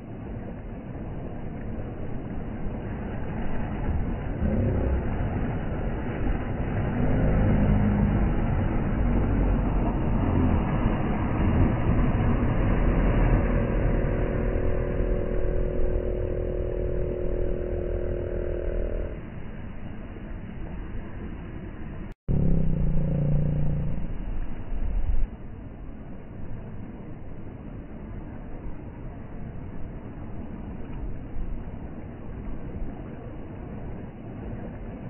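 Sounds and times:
steady higher hum: 0.0s - 28.6s
outboard boat motor running: 1.0s - 19.3s, 22.3s - 24.6s.

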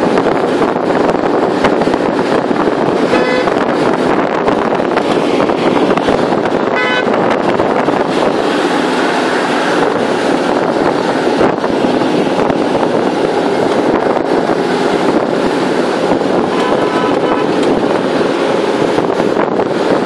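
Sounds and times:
wind and road noise: 0.0s - 20.0s
short horn toot: 3.1s - 3.6s, 16.5s - 17.6s.

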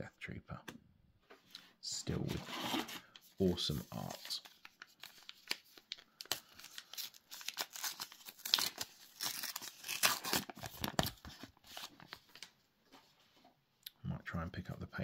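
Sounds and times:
wrapper tearing and crinkling: 4.0s - 12.4s.

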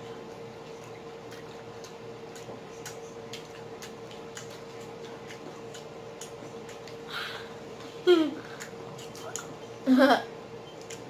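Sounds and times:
crunchy chewing: 0.0s - 7.1s, 8.4s - 9.8s, 10.7s - 11.0s
faint steady hum: 0.0s - 11.0s.

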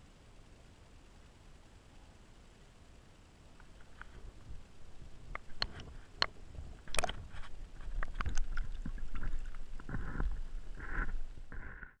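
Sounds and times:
low rumble: 3.8s - 12.0s
water lapping against camera: 5.3s - 11.7s.

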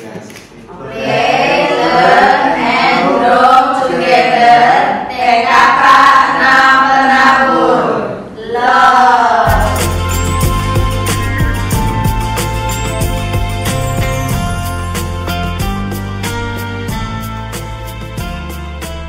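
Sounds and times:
group of adults singing: 0.7s - 10.0s.

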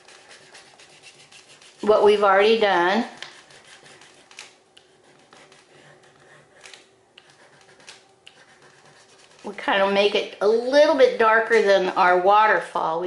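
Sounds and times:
crayon scratching on paper: 0.0s - 2.3s, 3.2s - 9.7s.

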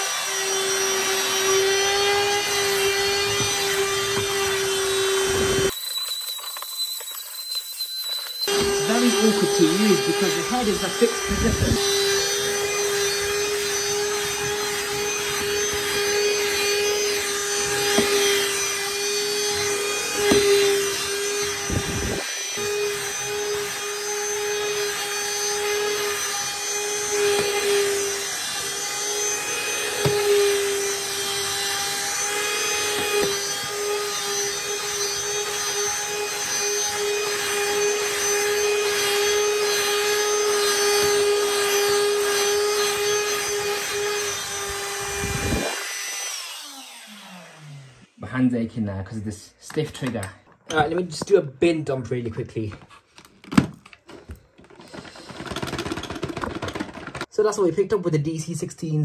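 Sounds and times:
vacuum motor spinning down: 0.0s - 48.1s
vacuum cleaner whining: 0.0s - 48.2s, 53.6s - 57.3s
vacuum brush knocks: 17.7s - 18.4s, 20.2s - 20.7s, 29.9s - 30.4s.

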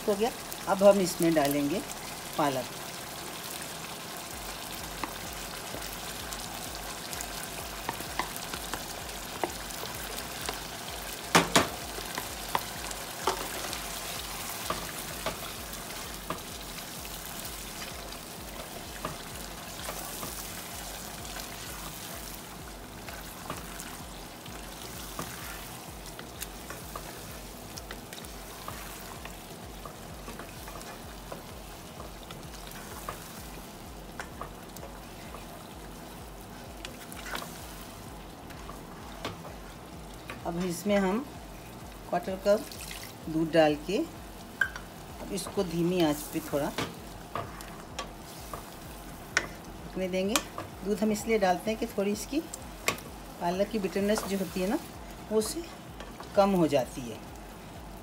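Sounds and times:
curry sizzling in a pan: 0.0s - 58.0s
wooden spoon knocking against pan: 11.3s - 11.8s.

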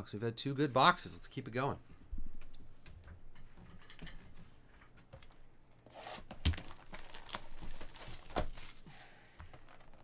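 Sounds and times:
plastic shrink wrap crinkling: 5.9s - 10.0s.

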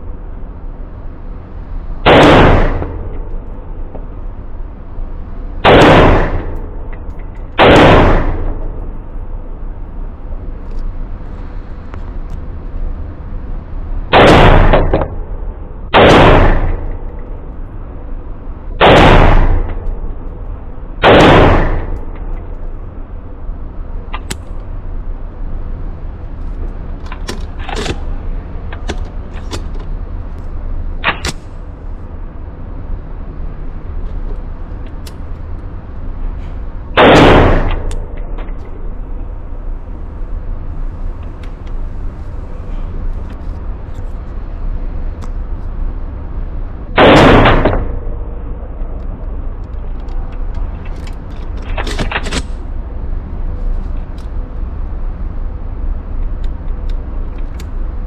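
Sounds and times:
pistol shots echoing indoors: 7.6s - 8.7s, 15.9s - 17.0s, 21.0s - 22.1s, 47.0s - 48.0s.

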